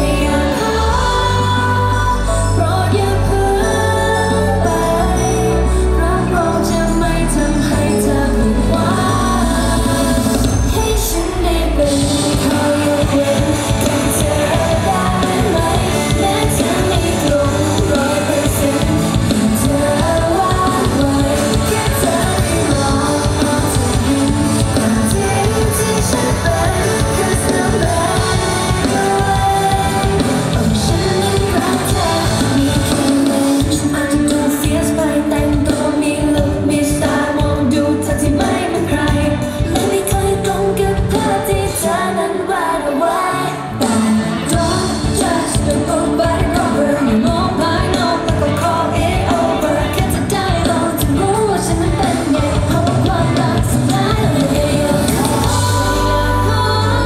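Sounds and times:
live pop band playing: 0:00.0 - 0:57.0
women singing through a pa: 0:00.0 - 0:57.0.

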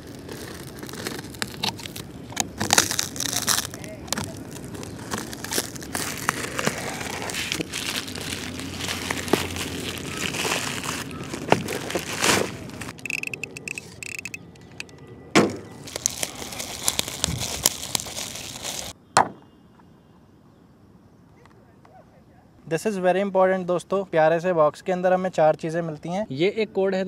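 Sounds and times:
plastic shrink wrap crinkling: 0:00.0 - 0:14.4, 0:15.7 - 0:19.0.

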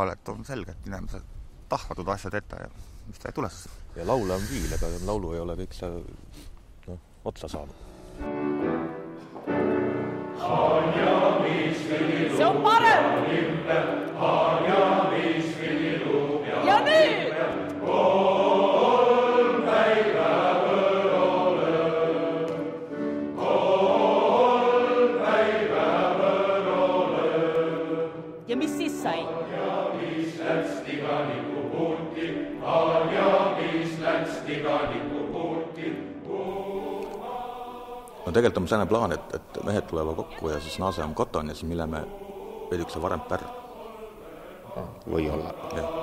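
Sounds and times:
high rising vocal glide: 0:04.0 - 0:05.2
men's choir singing: 0:09.9 - 0:46.0.

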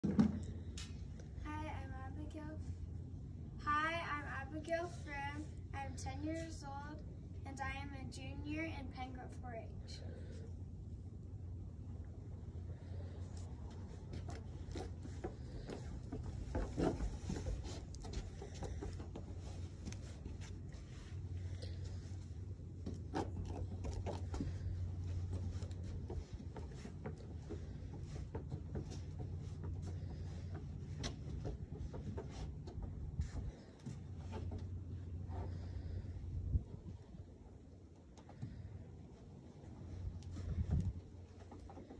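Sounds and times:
steady low rumble: 0:00.0 - 0:41.9
hooves and shoes on wooden boards: 0:12.8 - 0:37.1.

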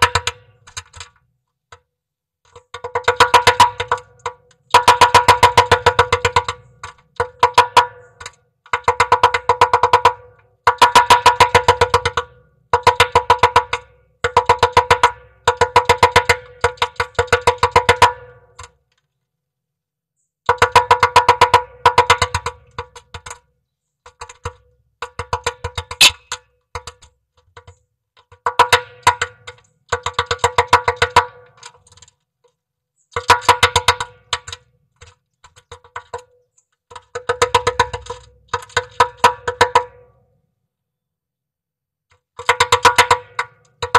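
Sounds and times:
woodpecker knocking on wood: 0:02.5 - 0:18.2, 0:20.5 - 0:31.2.

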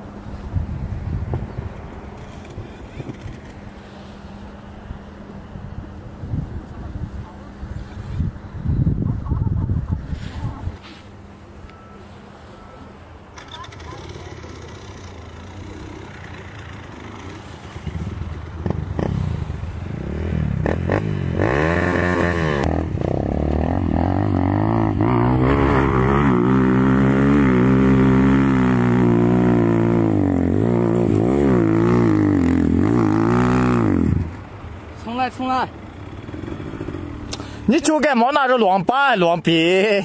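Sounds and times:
dirt bike engine revving: 0:13.4 - 0:34.4, 0:35.7 - 0:37.8.

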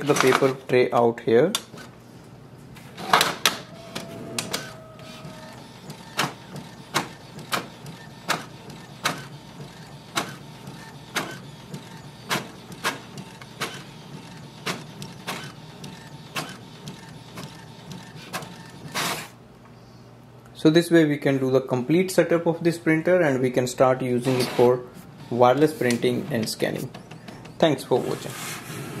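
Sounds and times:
inkjet printer running: 0:03.0 - 0:19.3
printer knock: 0:03.1 - 0:18.6
printer clicks: 0:03.1 - 0:19.1.

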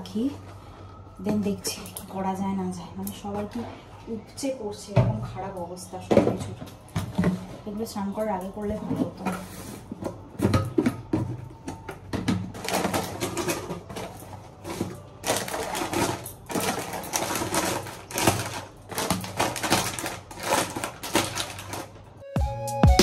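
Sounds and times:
plastic bags crinkling: 0:09.0 - 0:22.2.

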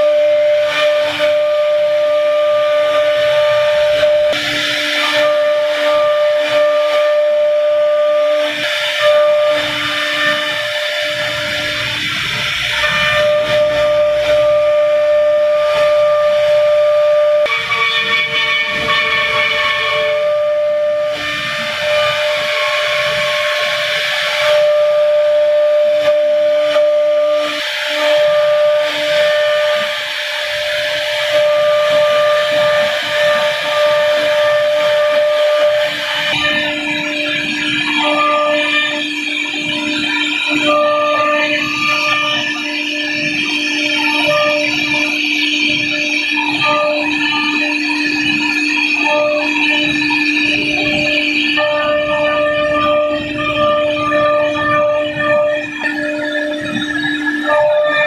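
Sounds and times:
router spindle whining: 0:00.0 - 0:58.0.

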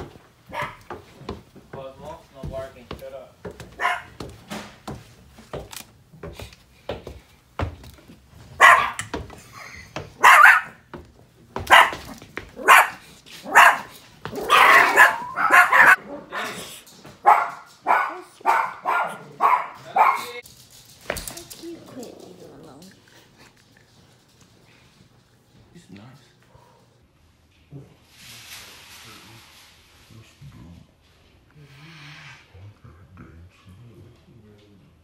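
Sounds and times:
small dog barking: 0:00.5 - 0:00.9, 0:03.8 - 0:04.3, 0:08.6 - 0:09.2, 0:10.2 - 0:10.9, 0:11.6 - 0:16.6, 0:17.2 - 0:20.4.

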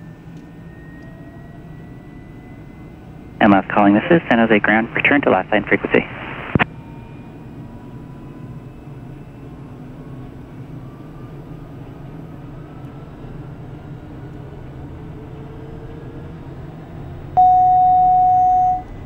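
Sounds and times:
turboprop engine rumble and whine: 0:00.0 - 0:19.0
electronic alert tone: 0:17.4 - 0:18.9.

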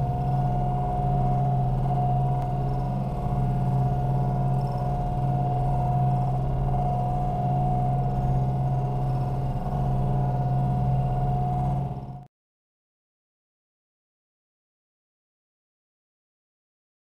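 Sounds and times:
steady high whine: 0:00.0 - 0:12.3.

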